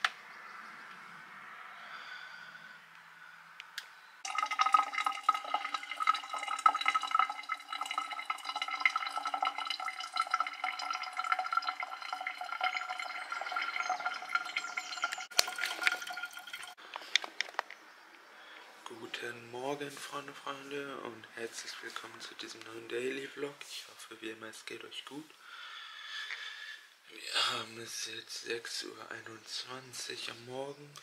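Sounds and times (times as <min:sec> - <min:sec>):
water pouring into a mug: 0:04.2 - 0:16.8.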